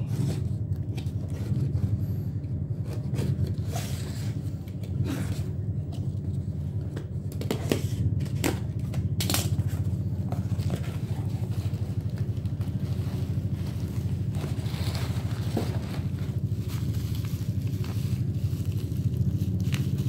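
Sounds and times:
low mechanical hum: 0.0s - 20.0s
bubble wrap crackling rustle: 9.2s - 20.0s.

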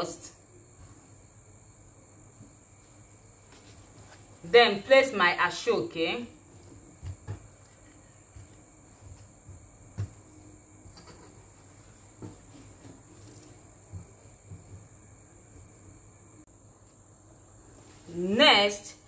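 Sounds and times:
hands rustling fabric on table: 2.4s - 4.4s.

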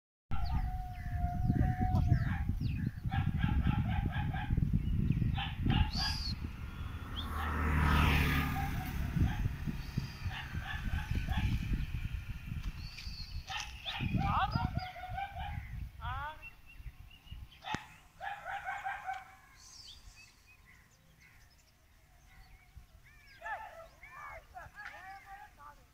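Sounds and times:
farm animal calls: 13.4s - 16.4s, 22.4s - 25.9s.

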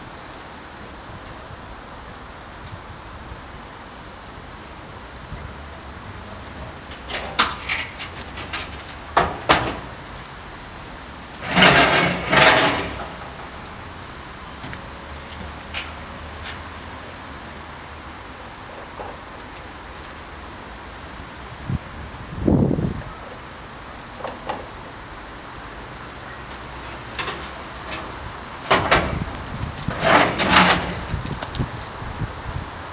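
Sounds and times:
pallet scraping on asphalt: 6.3s - 10.2s, 11.4s - 13.8s, 26.5s - 32.0s
metal cage and pallet rattling: 6.9s - 10.0s, 11.4s - 13.6s, 26.8s - 31.4s.

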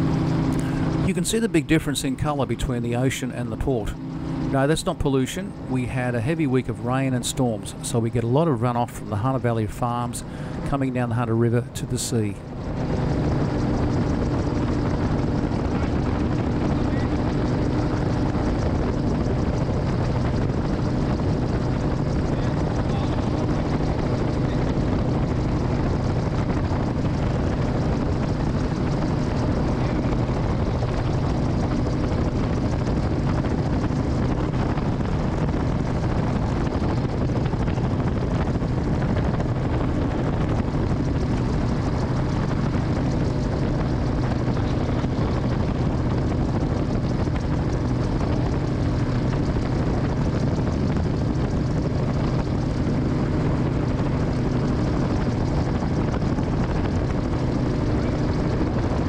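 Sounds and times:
aircraft engine and propeller drone: 0.0s - 59.0s
rush of air: 10.2s - 10.7s.

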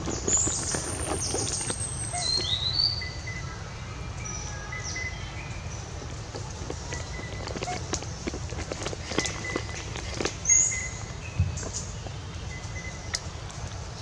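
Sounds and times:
birds whistling: 0.1s - 3.6s, 9.0s - 11.9s
bird chirps: 0.2s - 3.6s, 10.4s - 13.3s.

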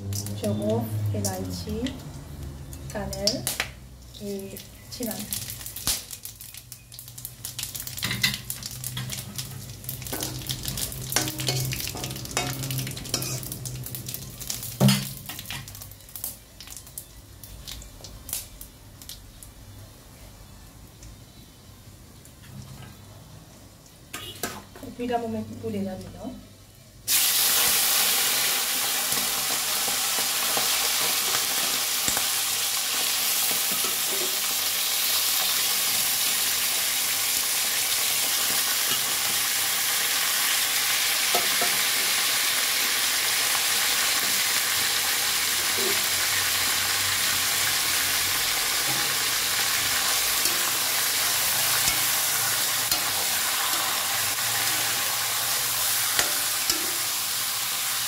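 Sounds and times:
chicken frying in hot oil: 2.9s - 19.7s, 27.1s - 58.0s
spatula scraping a wok: 9.4s - 13.6s.

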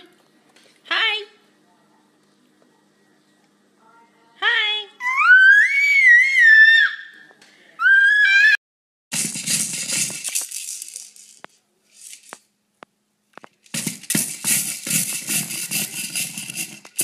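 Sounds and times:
baby screaming happily: 5.0s - 7.2s, 7.8s - 8.6s
plastic baby rattle shaking: 9.1s - 12.4s, 13.7s - 17.0s.

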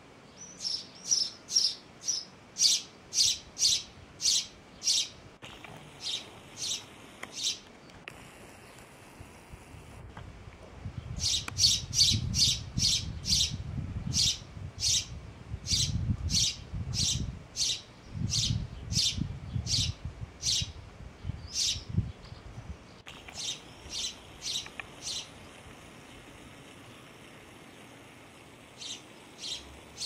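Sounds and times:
sparrow chirping: 0.3s - 5.2s, 6.0s - 7.6s, 11.1s - 25.4s, 28.8s - 30.0s.

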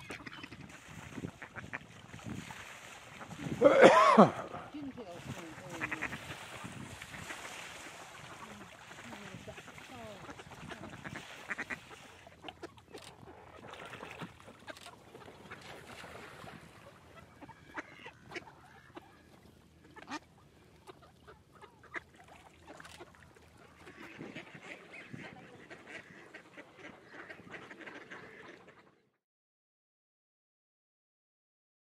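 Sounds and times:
ducks quacking: 0.0s - 2.0s, 3.1s - 29.2s.

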